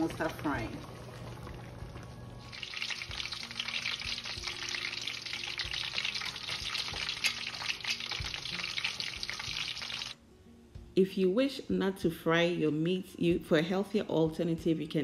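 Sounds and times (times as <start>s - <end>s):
meat sizzling in oil: 0.0s - 10.2s.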